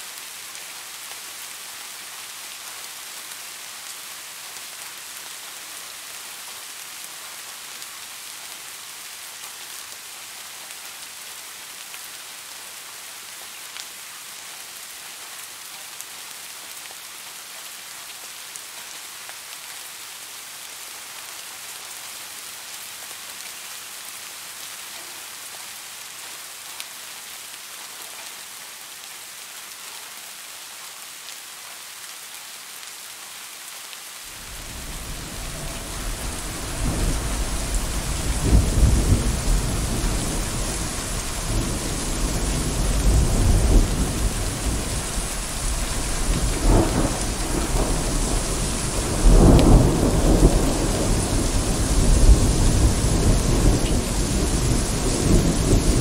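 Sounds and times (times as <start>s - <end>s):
steady rain hiss: 0.0s - 56.0s
deep rolling thunder: 34.4s - 56.0s.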